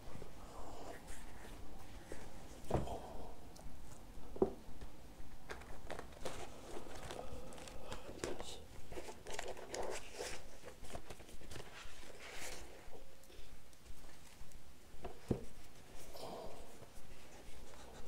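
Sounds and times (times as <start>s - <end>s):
paper rustling and crinkling: 5.5s - 13.0s.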